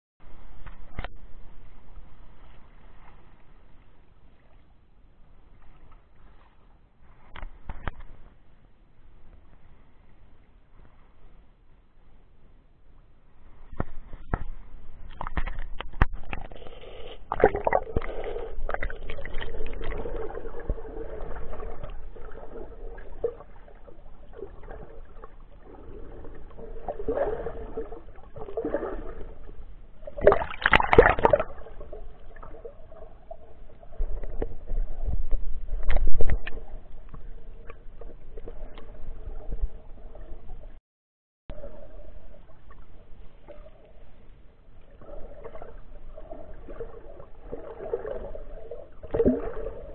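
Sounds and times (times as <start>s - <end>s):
water sloshing and gurgling: 0.3s - 8.4s, 13.3s - 40.8s, 41.5s - 49.9s
water splashing: 13.7s - 40.8s, 44.8s - 49.9s.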